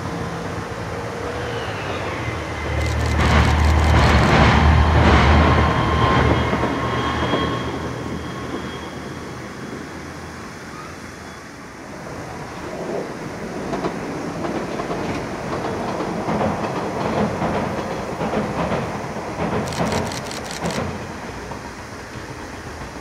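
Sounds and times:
sharp clicks: 2.8s - 4.4s, 19.6s - 20.9s.

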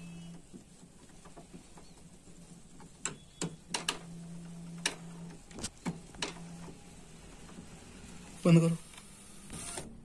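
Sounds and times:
printer mechanism clicking: 2.8s - 6.8s.

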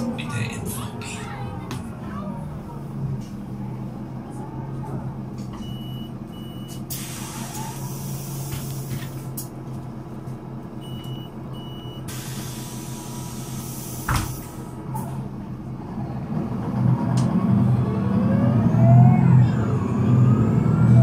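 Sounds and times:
diesel bus engine idling: 0.0s - 18.2s
hiss: 6.9s - 8.7s, 12.1s - 14.5s.

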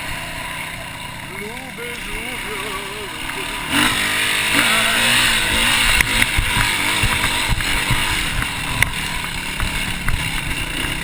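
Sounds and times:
bike thumping and rattling: 3.2s - 11.0s.

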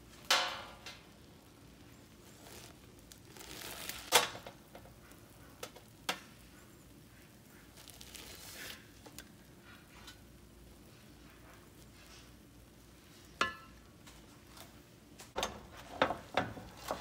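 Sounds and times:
spoon knocking metal pan: 13.4s - 13.8s.

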